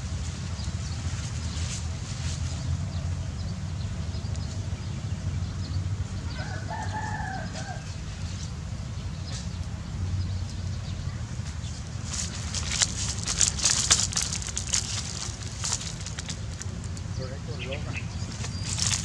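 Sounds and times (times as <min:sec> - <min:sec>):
rooster crowing: 0:06.3 - 0:07.9
steady low rumble: 0:07.4 - 0:19.0.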